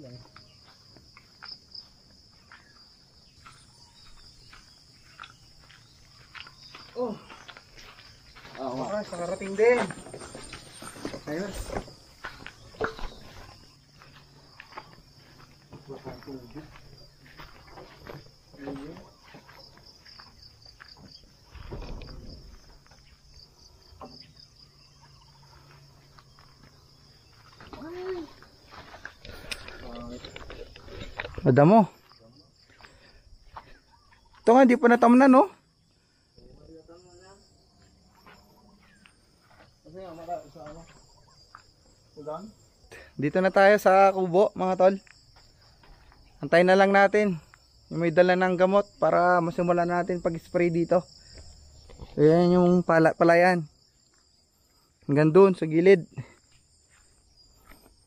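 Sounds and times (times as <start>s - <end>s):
insect chirring: 0.0s - 58.0s
footsteps through grass: 0.5s - 21.8s, 24.9s - 34.5s.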